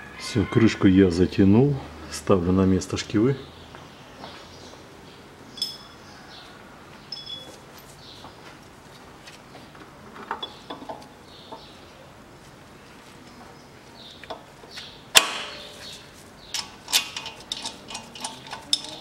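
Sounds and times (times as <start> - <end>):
metal clinks and knocks: 5.5 - 6.0, 7.1 - 7.9, 16.5 - 19.0.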